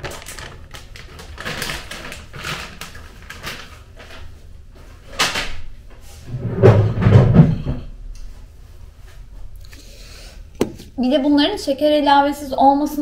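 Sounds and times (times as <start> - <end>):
knocks and rustles: 1.1 - 8.4.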